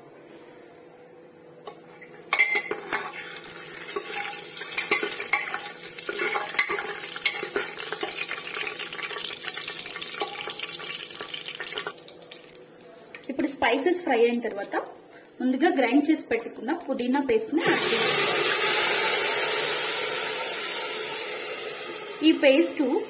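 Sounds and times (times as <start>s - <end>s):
spoon stirring and clinking on pot: 1.7s - 3.3s, 3.9s - 8.2s
spices sizzling in hot oil: 1.7s - 23.0s.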